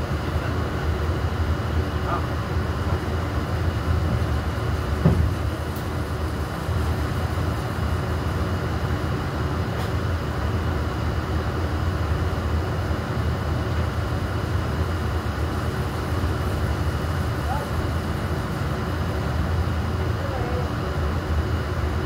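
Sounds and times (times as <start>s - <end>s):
short knock: 5.0s - 5.4s.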